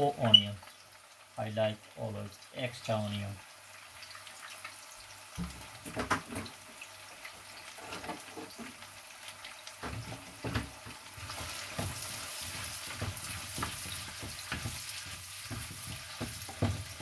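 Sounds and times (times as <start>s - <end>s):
onions sizzling in hot oil: 0.0s - 17.0s
soft knocks and crackles: 9.8s - 17.0s.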